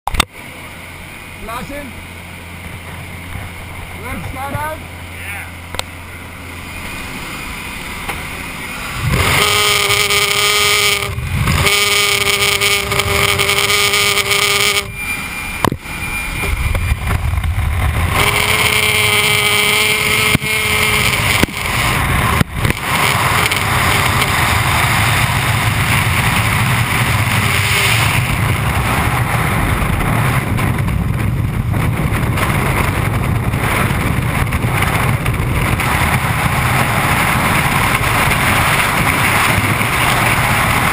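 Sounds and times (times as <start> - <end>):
propeller engine drone: 0.0 - 40.9
freefall wind on microphone: 0.1 - 40.9
wind rushing through open door: 21.3 - 40.9.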